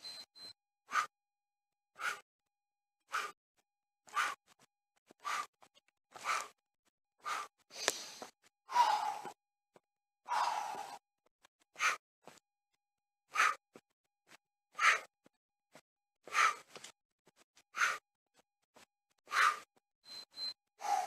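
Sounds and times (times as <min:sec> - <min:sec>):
man breathing hard: 0:00.9 - 0:01.1, 0:02.0 - 0:02.2, 0:03.1 - 0:03.4, 0:05.2 - 0:05.6, 0:07.2 - 0:09.4, 0:10.3 - 0:11.0, 0:11.8 - 0:12.0, 0:13.3 - 0:13.6, 0:14.8 - 0:15.1, 0:16.2 - 0:16.8, 0:17.8 - 0:18.0, 0:19.3 - 0:19.7.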